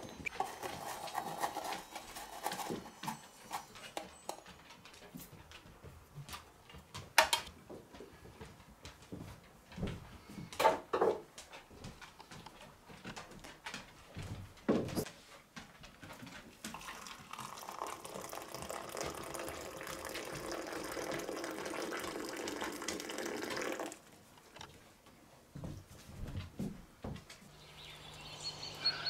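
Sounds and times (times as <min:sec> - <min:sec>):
water pouring into a cup: 0:16.7 - 0:24.1.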